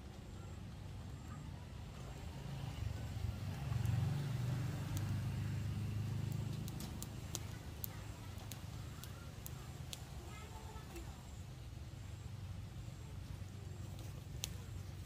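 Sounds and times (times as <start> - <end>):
motor vehicle engine rumble passing: 0.6 - 10.8.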